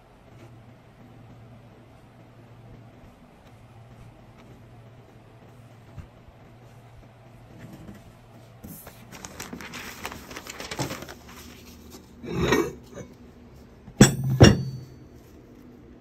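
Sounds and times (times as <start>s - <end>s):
metal scraping: 12.2s - 13.1s
metal parts clinking: 14.0s - 14.9s
ringing metal clanks: 14.0s - 15.0s.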